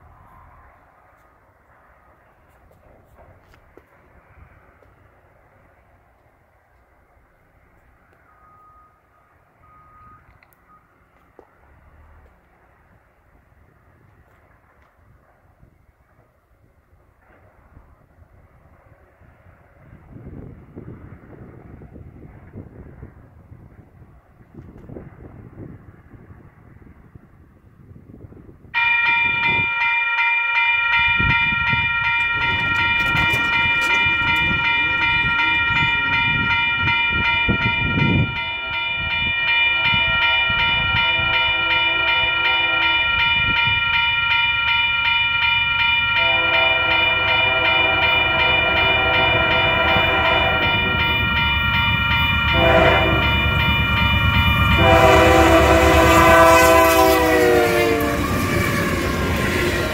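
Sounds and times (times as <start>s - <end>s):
engine and wheel rumble: 0.0s - 15.5s
crossing warning bell ringing: 28.8s - 59.9s
locomotive horn blasts: 30.8s - 44.6s, 45.9s - 59.9s.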